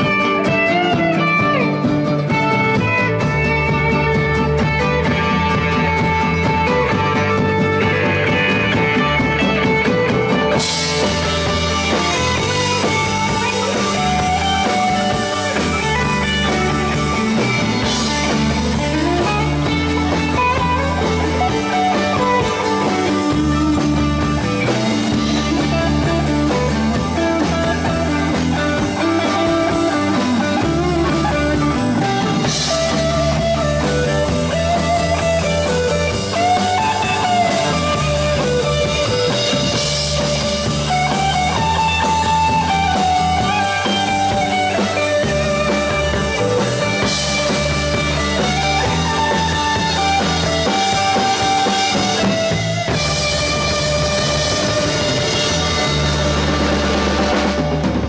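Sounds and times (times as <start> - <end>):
bass guitar: 0.0 - 58.0
drum kit beat: 0.0 - 58.0
electric guitars: 0.0 - 58.0.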